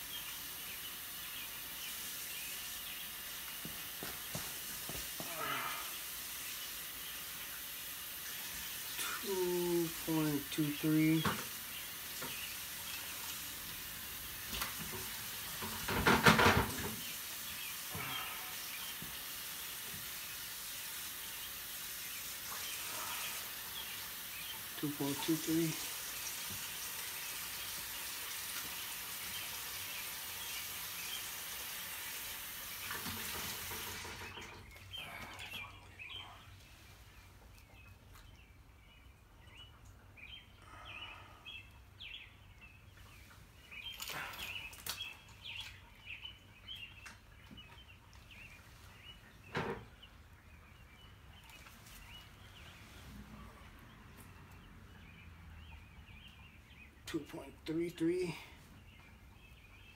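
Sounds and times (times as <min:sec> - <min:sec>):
small birds chirping: 0:00.0 - 0:59.9
rushing hiss: 0:16.8 - 0:30.4.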